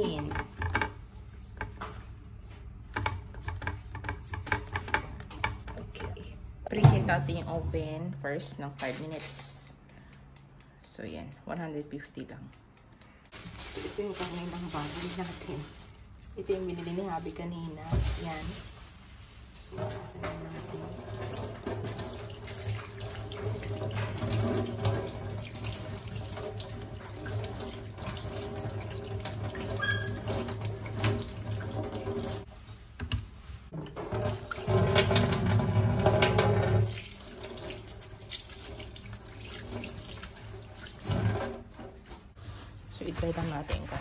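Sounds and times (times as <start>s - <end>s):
tap water running into sink: 19.8s - 33.2s, 33.8s - 42.0s.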